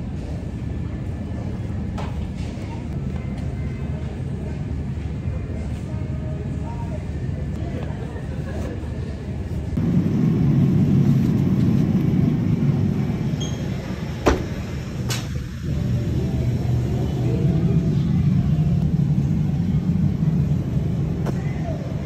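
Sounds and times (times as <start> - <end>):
road vehicle rumble: 9.1 - 22.0.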